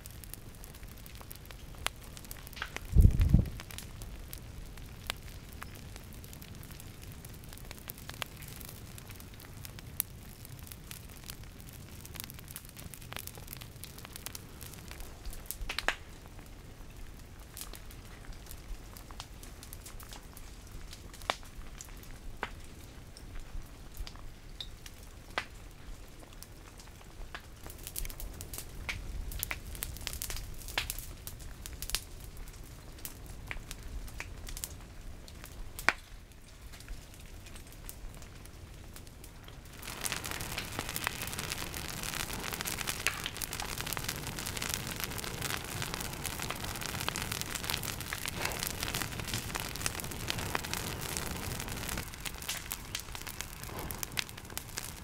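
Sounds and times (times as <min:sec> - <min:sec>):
brush crackling and popping: 0:00.0 - 0:55.0
even hiss: 0:39.7 - 0:55.0.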